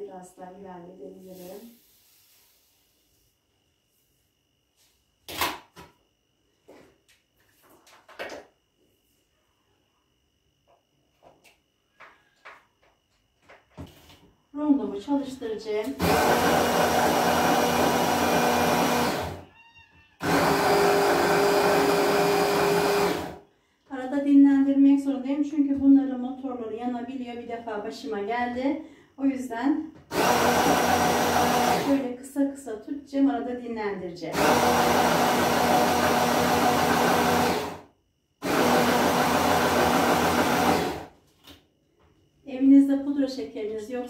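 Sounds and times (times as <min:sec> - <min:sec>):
hand blender grinding sugar: 0:16.0 - 0:19.4, 0:20.2 - 0:23.4, 0:30.1 - 0:32.1, 0:34.3 - 0:37.8, 0:38.4 - 0:41.1.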